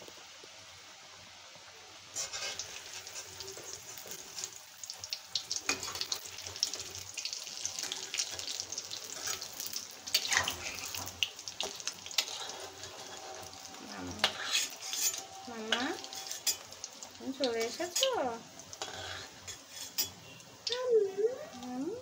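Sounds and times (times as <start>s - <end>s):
frying in hot oil: 0.0s - 22.0s
metal utensils scraping a pan: 2.2s - 4.6s, 5.6s - 16.8s, 17.4s - 20.4s.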